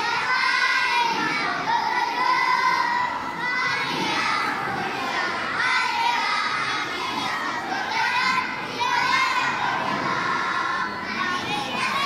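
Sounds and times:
children's choir singing: 0:00.0 - 0:12.0.

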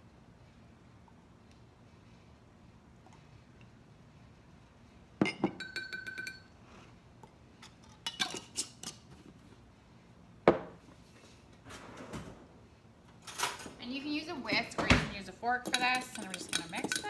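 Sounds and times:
spoon clinking against glass jar: 0:05.2 - 0:06.5, 0:15.6 - 0:17.0.

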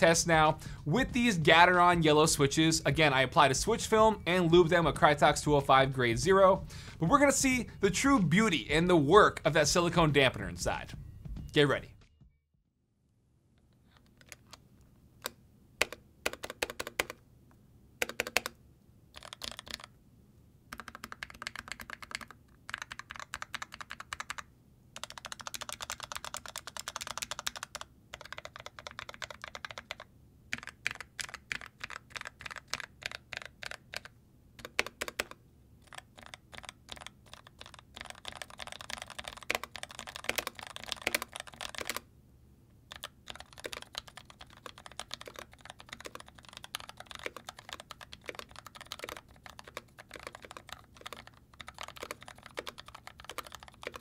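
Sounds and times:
mechanical keyboard typing: 0:14.1 - 0:14.6, 0:15.2 - 0:17.2, 0:18.0 - 0:19.9, 0:20.7 - 0:42.0, 0:42.9 - 0:54.0.

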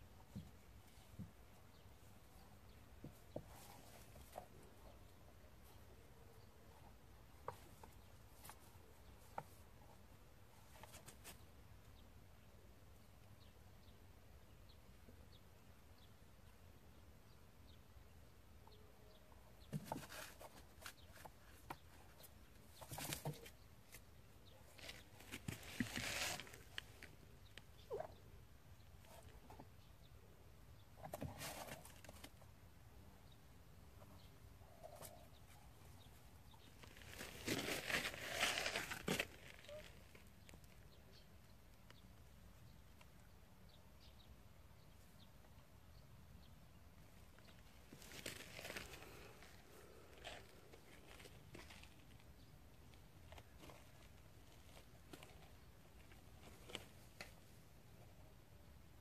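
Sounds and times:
faint bird chirps: 0:26.5 - 0:37.4, 0:39.3 - 0:58.3.

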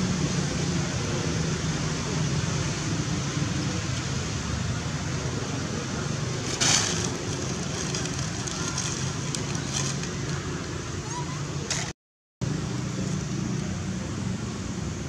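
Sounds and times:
low engine-like hum: 0:00.0 - 0:15.0
outdoor background hiss: 0:00.0 - 0:15.0
burst of rustling: 0:06.3 - 0:10.5.

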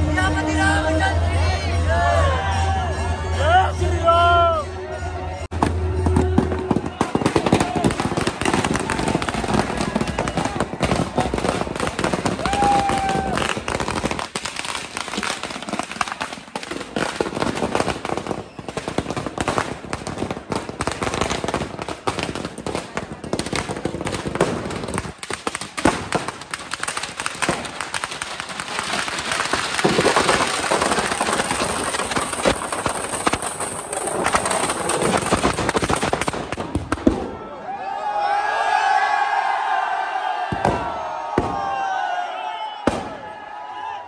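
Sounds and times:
firecrackers going off: 0:05.5 - 0:37.4.

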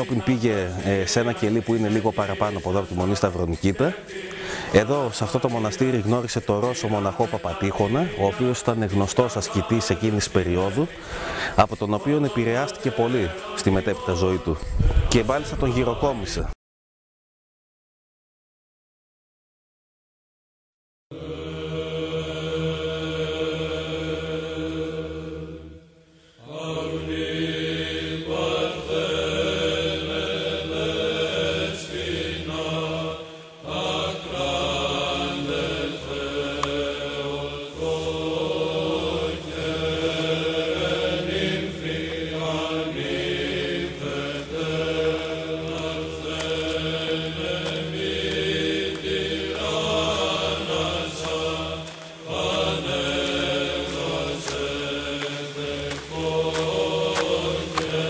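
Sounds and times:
voices chanting slow melody: 0:00.0 - 0:15.4, 0:21.1 - 0:58.0
steady held drone: 0:21.2 - 0:58.0.

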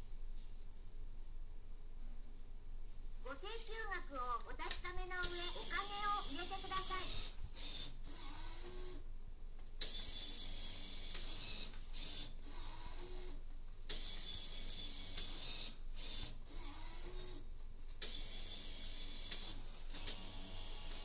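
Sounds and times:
sharp mechanical clicks: 0:04.6 - 0:09.0, 0:09.8 - 0:17.3, 0:18.0 - 0:21.0
banknote acceptor whirring: 0:05.1 - 0:09.0.

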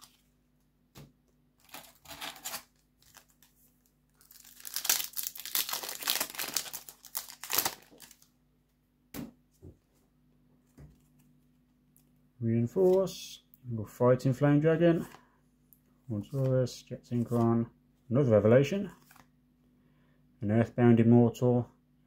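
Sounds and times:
foil wrapper crinkling and tearing: 0:01.6 - 0:08.3.

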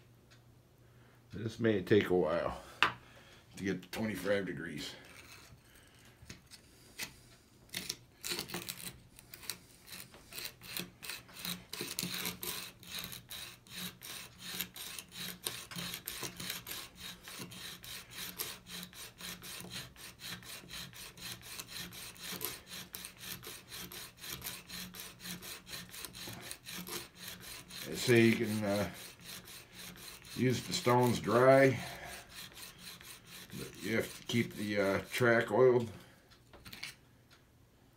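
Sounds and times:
chisel grinding on sharpening stone: 0:07.7 - 0:35.6.

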